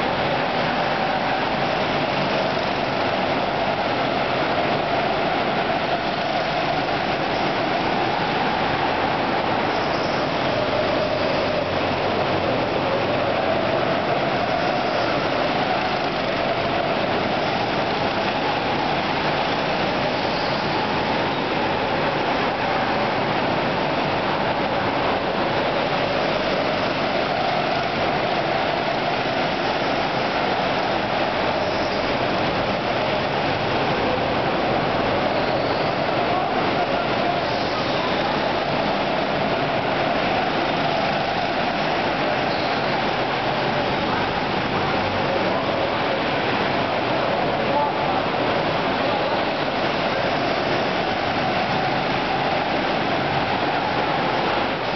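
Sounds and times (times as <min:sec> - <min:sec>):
go-kart engines droning: 0:00.0 - 0:54.9
rushing air: 0:00.0 - 0:54.9.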